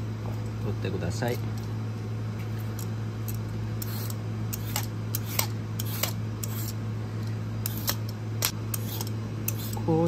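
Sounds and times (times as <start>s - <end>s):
peeler scraping celery: 3.3s - 6.8s, 7.6s - 8.0s, 8.7s - 10.0s.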